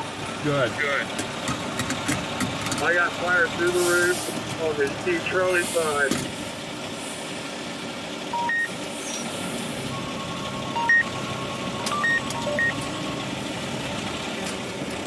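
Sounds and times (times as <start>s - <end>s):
vehicle engines idling: 0.0s - 15.0s
two-note electronic beeps: 8.4s - 8.7s, 9.9s - 13.3s.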